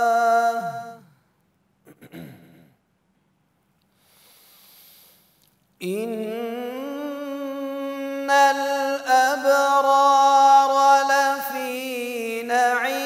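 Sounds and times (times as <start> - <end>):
man chanting: 0.0 - 1.1, 5.8 - 13.0
long audible breath: 3.9 - 5.4.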